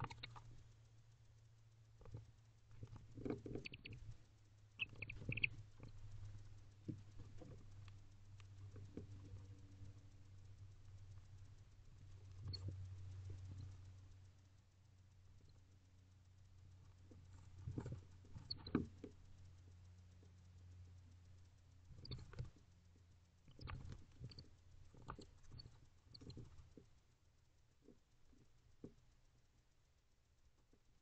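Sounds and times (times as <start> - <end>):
faint low hum: 0.0 - 31.0
owls rustling in nest box: 4.8 - 6.1.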